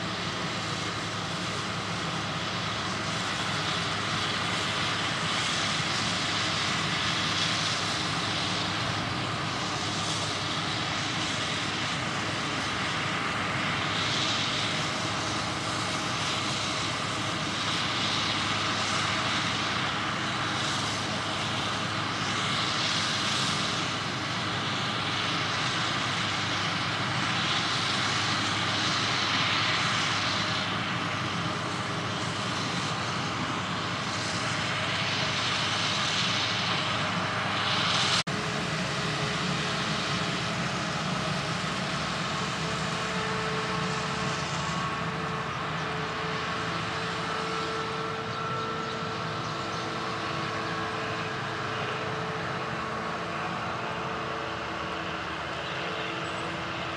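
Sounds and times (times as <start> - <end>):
hiss: 0.0 - 47.6
faint machine whine: 0.0 - 56.9
forage harvester running: 0.0 - 56.9.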